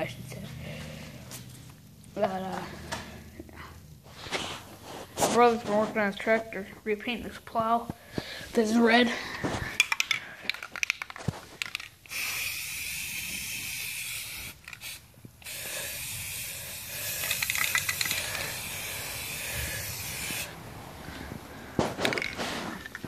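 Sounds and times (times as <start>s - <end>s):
spray paint can hissing: 10.8s - 20.6s.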